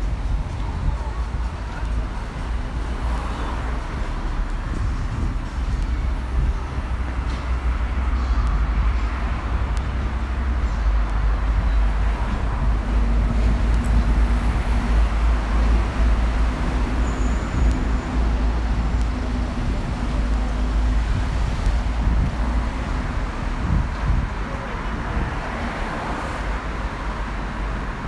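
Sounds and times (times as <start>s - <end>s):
engine hum: 0.0s - 28.0s
passing vehicles rumble: 0.0s - 28.0s.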